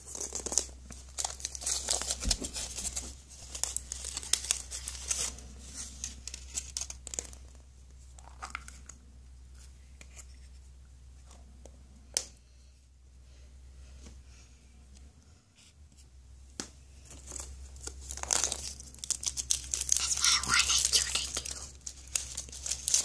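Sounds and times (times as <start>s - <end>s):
foil wrapper crinkling and tearing: 0.0s - 7.6s, 17.1s - 23.0s.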